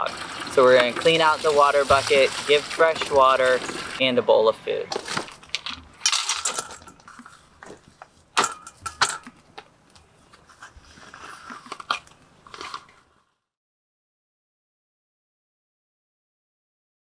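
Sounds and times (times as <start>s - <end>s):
dry kibble rattling into metal bowl: 4.9s - 7.8s.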